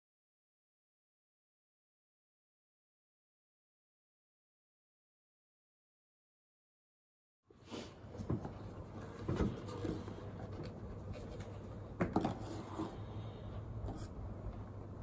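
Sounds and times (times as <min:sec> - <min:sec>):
steady low hum: 0:07.5 - 0:15.0.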